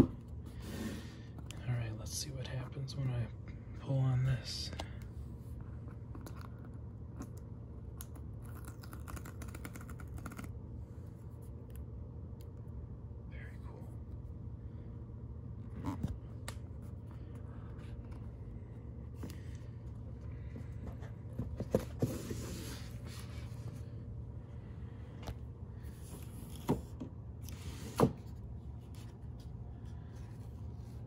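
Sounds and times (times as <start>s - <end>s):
box lid sliding: 21.7s - 23.2s.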